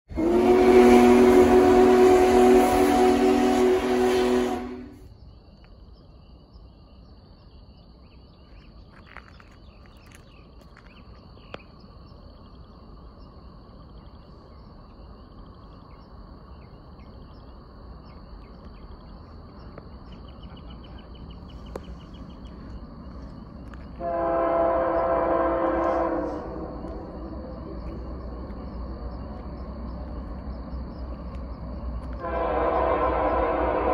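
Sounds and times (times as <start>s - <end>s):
freight train rumble: 0.0s - 6.0s, 10.3s - 33.9s
locomotive air horn: 0.1s - 5.1s, 24.0s - 27.3s, 32.2s - 33.9s
birds chirping: 5.2s - 33.5s.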